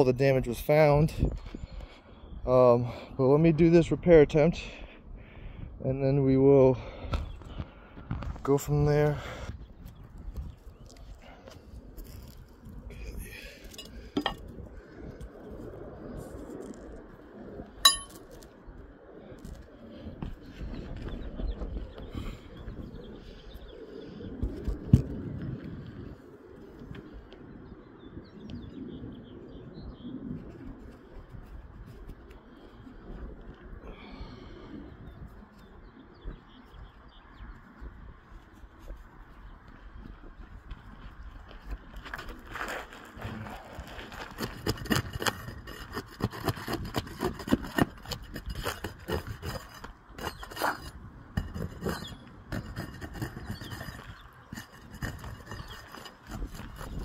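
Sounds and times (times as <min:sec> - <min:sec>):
wind buffeting microphone: 0:00.0 - 0:57.0
small birds chirping: 0:33.9 - 0:37.9, 0:49.2 - 0:57.0
pry bar scraping roof shingles: 0:42.1 - 0:57.0.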